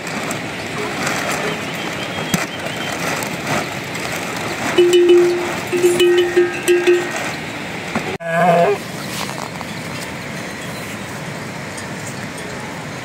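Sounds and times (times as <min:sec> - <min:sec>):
steady rushing noise: 0:00.0 - 0:08.2.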